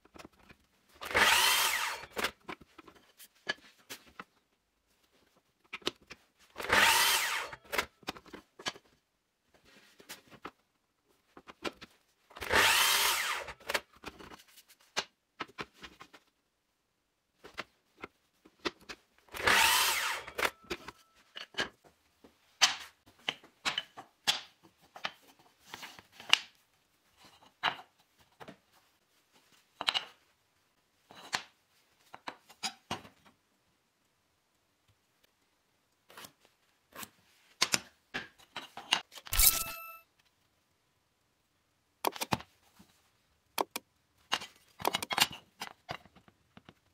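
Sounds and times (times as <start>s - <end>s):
mitre saw cutting wood: 1.0s - 2.2s, 6.6s - 7.8s, 12.4s - 13.6s, 19.4s - 20.5s
wooden blocks and tools knocking: 43.6s - 46.8s.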